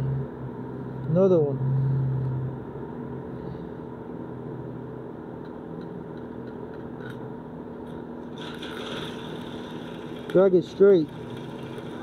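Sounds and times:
welding machine hum: 0:07.9 - 0:12.0
welding arc crackle: 0:08.3 - 0:12.0.

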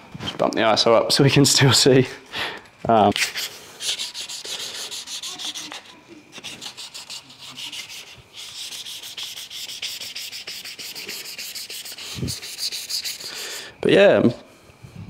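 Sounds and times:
sandpaper rubbing back and forth: 0:03.1 - 0:13.6.

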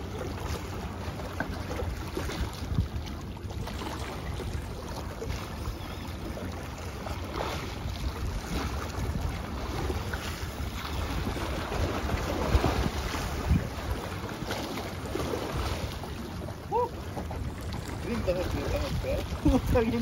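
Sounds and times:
wind buffeting microphone: 0:01.6 - 0:20.0
waves splashing against rocks: 0:07.2 - 0:20.0.

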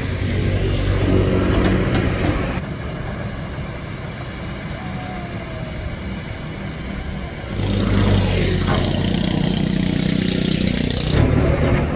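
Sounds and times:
excavator diesel engine rumble: 0:00.0 - 0:11.9.

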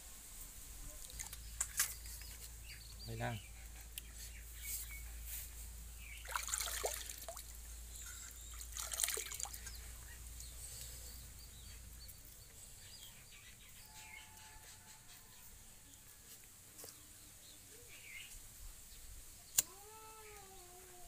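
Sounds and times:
water splashing into a tub: 0:06.2 - 0:07.6, 0:08.5 - 0:09.8.

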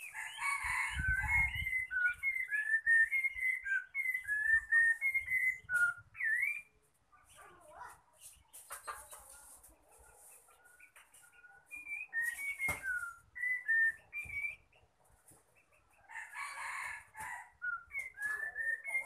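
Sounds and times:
bird whistling notes: 0:00.4 - 0:06.7, 0:11.7 - 0:14.7, 0:17.6 - 0:19.0.

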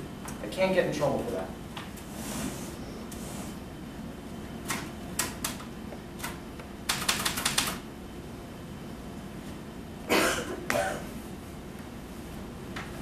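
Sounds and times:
typewriter keystrokes: 0:04.7 - 0:07.8.

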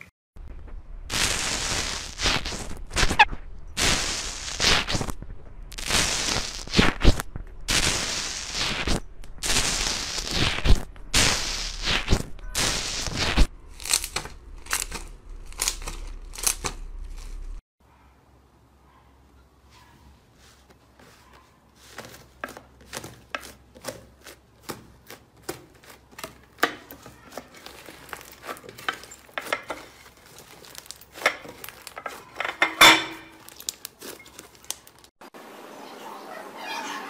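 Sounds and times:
crunchy slime crackling: 0:05.7 - 0:17.6, 0:21.8 - 0:32.6, 0:33.3 - 0:35.1.

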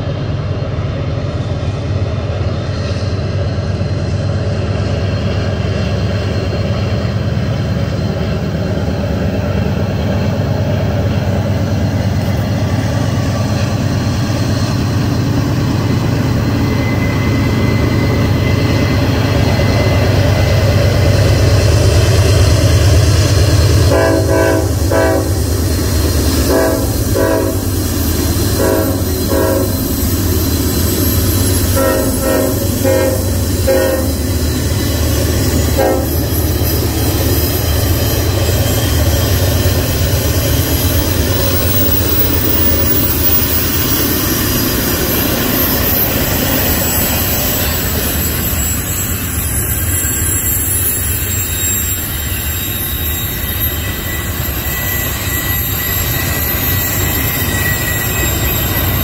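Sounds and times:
diesel locomotive engines rumbling: 0:00.0 - 0:59.0
locomotive horn blasts: 0:23.9 - 0:25.5, 0:26.4 - 0:27.7, 0:28.6 - 0:29.9, 0:31.7 - 0:34.2, 0:35.7 - 0:36.2.

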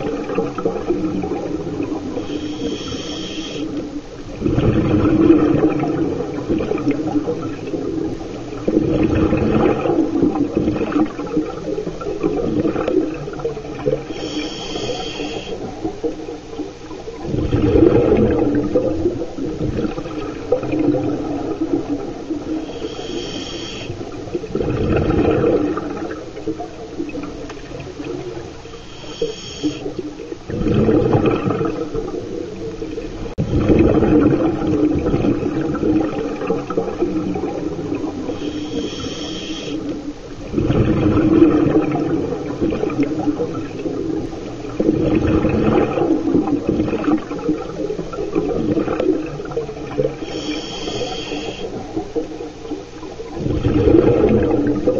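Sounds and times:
gurgle of exhaled bubbles: 0:00.0 - 0:54.9
regulator inhale hiss with whistle: 0:02.2 - 0:03.8, 0:14.1 - 0:15.6, 0:22.6 - 0:24.0, 0:28.6 - 0:30.0, 0:38.3 - 0:39.9, 0:50.2 - 0:51.8.

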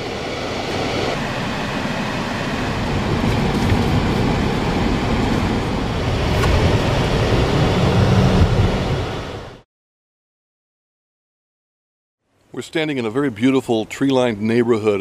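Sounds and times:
car engine rumble: 0:00.0 - 0:09.6.

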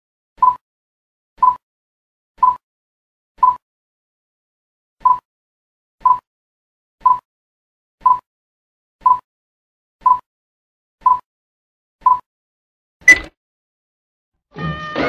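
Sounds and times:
countdown beeps: 0:01.4 - 0:01.6, 0:03.4 - 0:03.6, 0:09.0 - 0:09.2, 0:10.0 - 0:10.3, 0:12.1 - 0:12.3.

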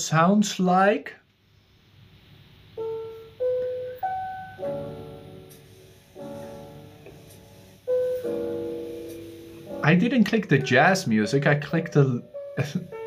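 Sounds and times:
jazz piano notes and chords: 0:02.7 - 0:13.0.

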